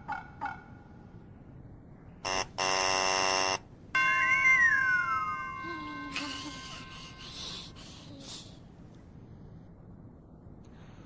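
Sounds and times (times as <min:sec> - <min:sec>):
wrong answer buzzer: 0:02.3 - 0:03.6.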